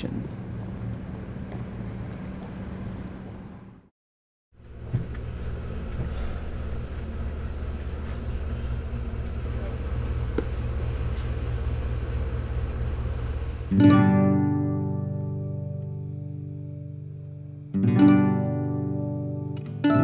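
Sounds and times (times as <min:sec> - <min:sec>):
low room hum: 0:04.6 - 0:17.4
acoustic guitar music: 0:12.8 - 0:20.0.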